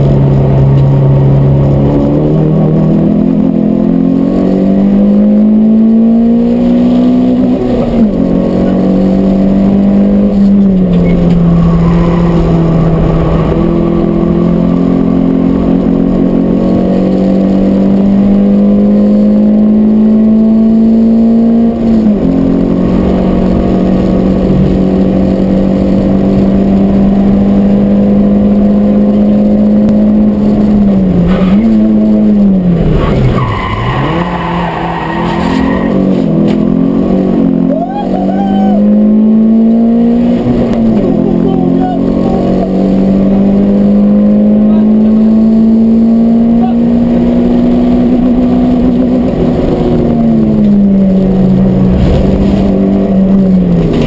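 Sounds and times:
car engine at high revs: 0.0s - 54.0s.

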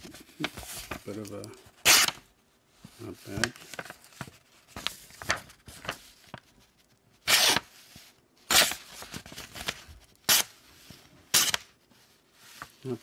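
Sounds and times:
paper rustling: 0.0s - 13.0s
knife cutting paper: 1.8s - 2.2s, 7.2s - 7.7s, 8.5s - 9.0s, 9.6s - 10.5s, 11.3s - 11.7s.

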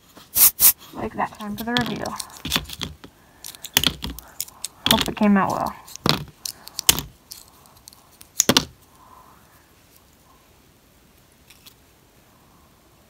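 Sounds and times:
faint handling noise: 0.0s - 9.0s.

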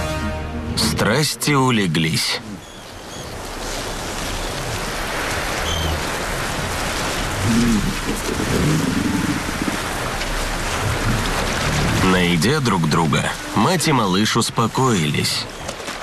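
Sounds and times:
surf on a beach: 0.0s - 16.0s
walruses grunting: 7.3s - 13.7s.

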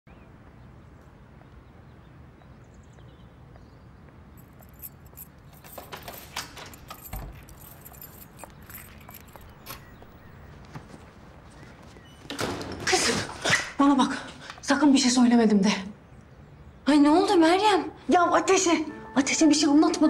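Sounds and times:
keys jangling: 4.4s - 10.3s
door handle clicking: 5.6s - 10.1s.

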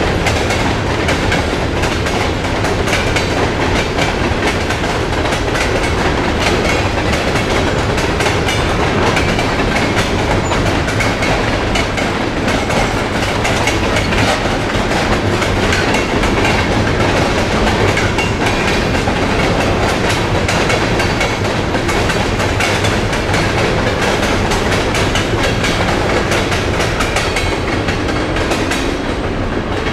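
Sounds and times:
train wheels clattering over rail joints: 0.0s - 29.9s.

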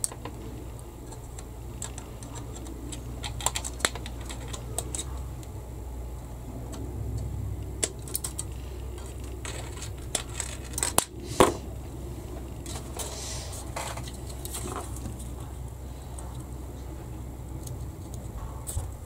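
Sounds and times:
plastic clicks and rattles: 0.0s - 5.5s, 7.8s - 11.2s
low steady hum: 0.0s - 19.0s.

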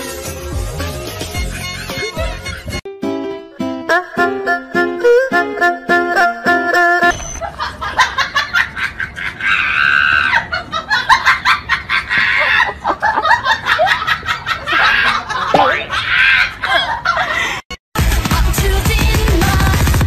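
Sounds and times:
person laughing: 1.5s - 2.8s, 7.4s - 17.6s.

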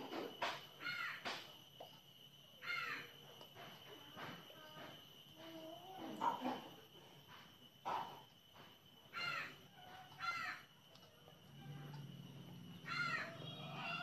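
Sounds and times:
faint high-pitched whine: 0.0s - 14.0s
crow cawing: 0.8s - 1.2s, 2.6s - 3.1s, 9.1s - 9.6s, 10.2s - 10.6s, 12.8s - 14.0s.

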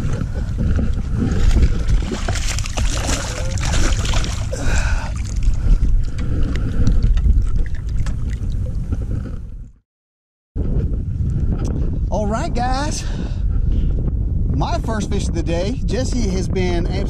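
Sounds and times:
wind rumble on microphone: 0.0s - 9.8s, 10.6s - 17.0s
fish splashing at surface: 1.9s - 5.5s.

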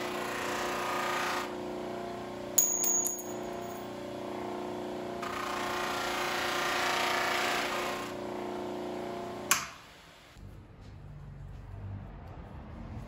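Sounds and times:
bench buffer motor hum: 0.0s - 10.4s
metallic clink: 2.6s - 3.8s.

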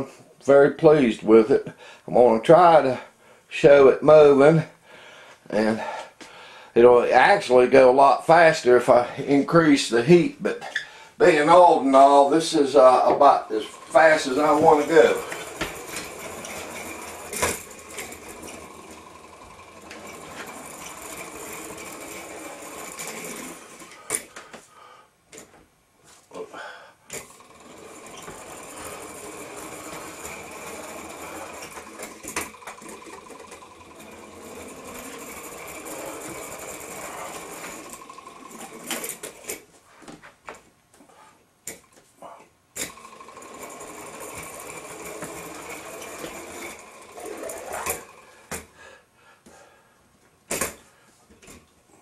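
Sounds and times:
toy engine mechanical rattle: 13.6s - 24.2s, 27.2s - 39.6s, 42.8s - 48.5s.

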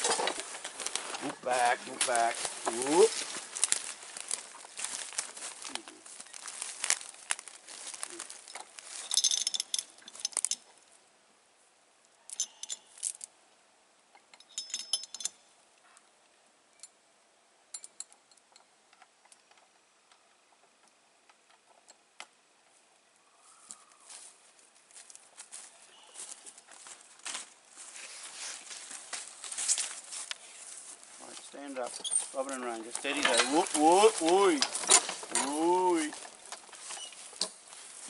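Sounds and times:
steel chain clinking and rattling: 7.7s - 10.8s, 12.3s - 13.3s, 14.3s - 15.4s, 31.7s - 38.0s.

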